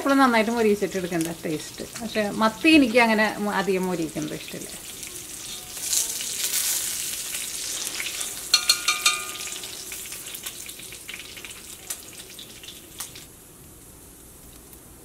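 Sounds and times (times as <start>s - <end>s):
fish sizzling in hot oil: 0.0s - 13.3s
metal clinking on metal: 8.5s - 9.6s.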